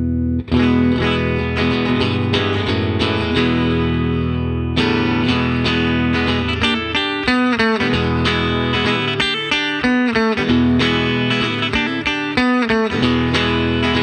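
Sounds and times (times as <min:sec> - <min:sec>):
electric guitar strumming chords: 0:00.0 - 0:14.0.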